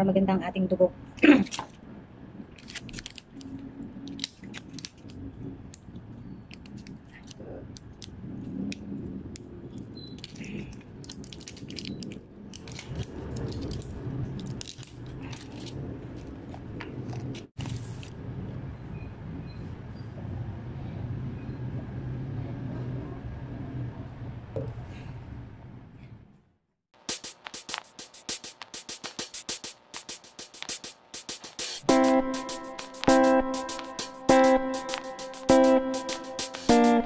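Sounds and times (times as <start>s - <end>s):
foil crackling: 2.5s - 18.1s
pills clicking out of blister packs: 2.6s - 3.5s, 4.1s - 5.2s, 10.2s - 16.3s.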